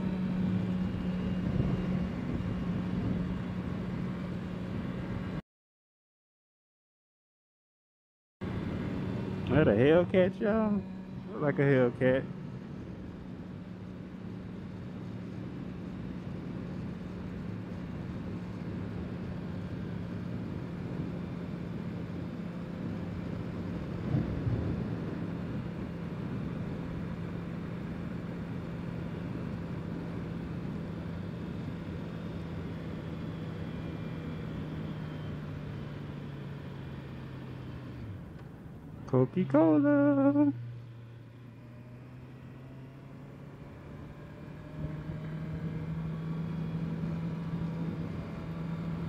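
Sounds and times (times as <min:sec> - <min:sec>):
motorcycle engine cruising: 0:00.0 - 0:05.4, 0:08.4 - 0:49.0
wind rushing over microphone: 0:00.5 - 0:05.3, 0:23.6 - 0:26.4.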